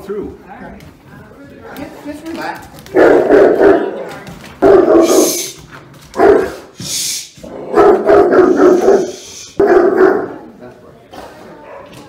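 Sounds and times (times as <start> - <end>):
dog barking deeply: 3.0 - 4.0, 4.6 - 5.5, 6.2 - 6.7, 7.5 - 10.5.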